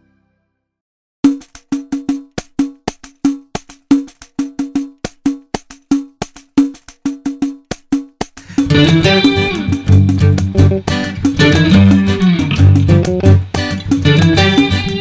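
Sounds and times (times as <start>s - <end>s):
hand percussion with jingles: 1.2s - 11.8s.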